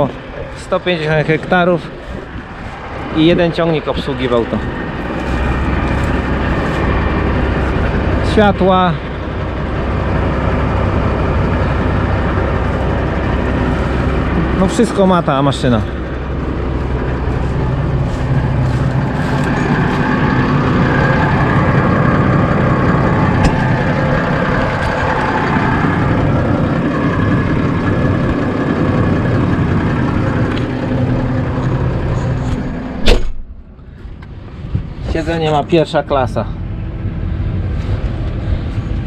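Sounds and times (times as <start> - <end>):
diesel tractor engine idling: 0.0 - 39.0
cab door slamming: 23.4 - 23.8, 33.0 - 33.5.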